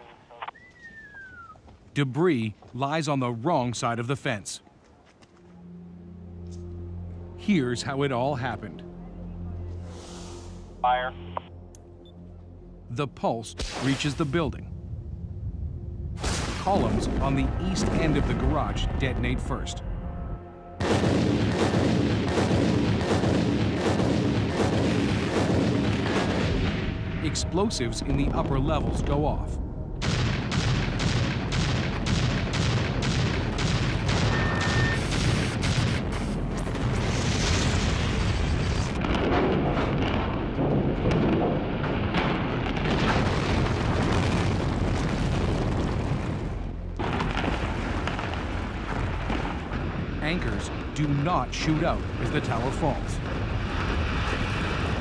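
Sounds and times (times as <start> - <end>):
demolition charges blasting: 20.8 - 55.0
rumble of collapsing building: 20.8 - 55.0.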